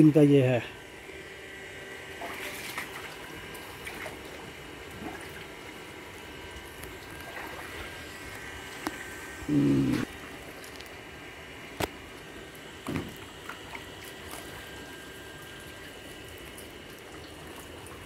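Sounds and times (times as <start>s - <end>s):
trickling running water: 2.1s - 9.1s, 11.9s - 18.0s
short voice sound: 9.5s - 10.1s.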